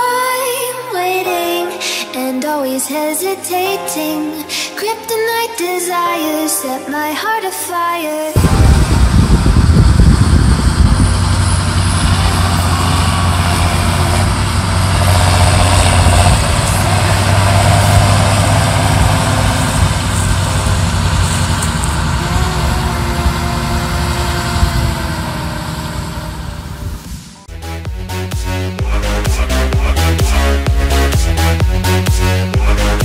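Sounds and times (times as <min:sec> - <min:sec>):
tractor engine running: 0:08.4 - 0:33.0.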